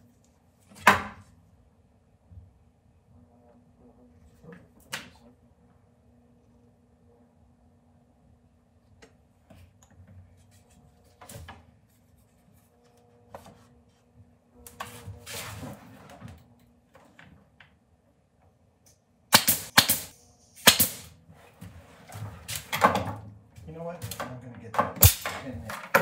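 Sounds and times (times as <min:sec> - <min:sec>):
nail gun shots: 0:19.3 - 0:21.1, 0:25.0 - 0:26.0.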